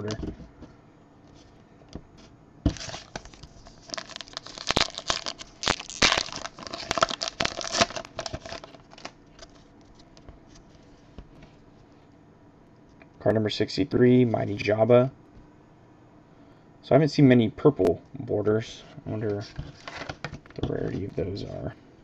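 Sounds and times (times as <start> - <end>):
plastic crinkling and rustling: 2.7 - 10.7.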